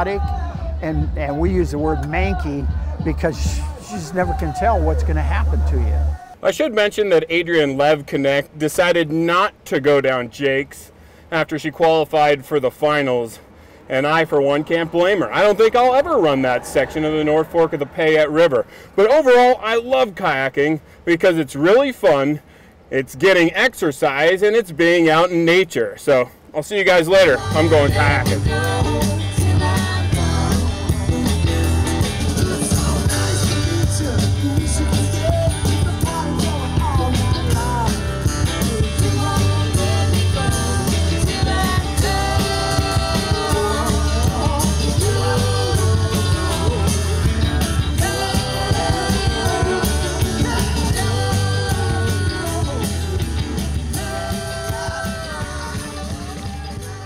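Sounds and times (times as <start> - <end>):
rock song with singing: 0.0 - 6.4, 27.0 - 57.0.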